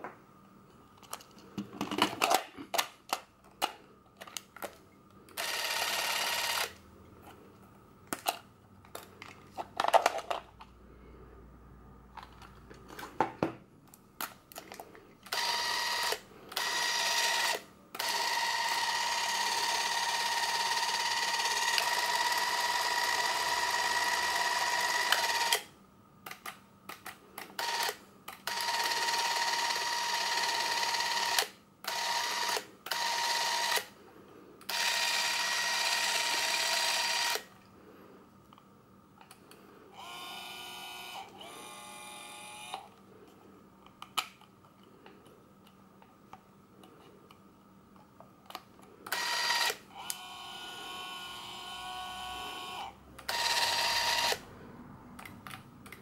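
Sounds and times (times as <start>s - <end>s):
camera motor whining: 5.4s - 6.8s, 15.3s - 25.7s, 27.6s - 33.9s, 34.7s - 37.5s, 40.0s - 42.9s, 49.1s - 54.4s.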